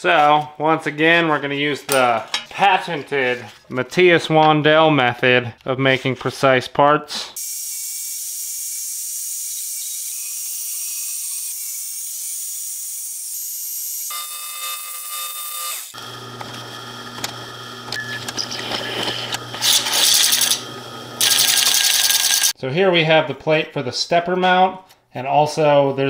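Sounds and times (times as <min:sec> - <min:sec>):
bandsaw cutting metal: 0:07.4 - 0:22.6
belt sander running: 0:14.1 - 0:22.5
drill press motor humming: 0:15.4 - 0:22.5
step bit scraping metal: 0:15.5 - 0:22.5.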